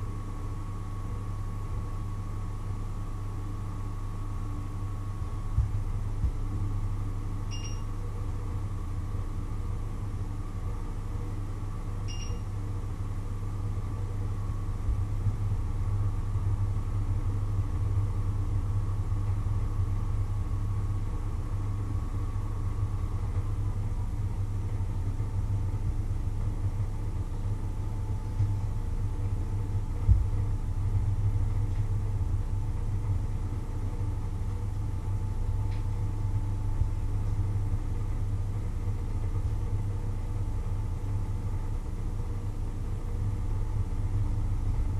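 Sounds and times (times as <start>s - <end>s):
low electrical hum: 0.0s - 44.9s
short beep: 7.5s - 7.8s
faint high whine: 7.5s - 8.0s, 12.1s - 12.5s.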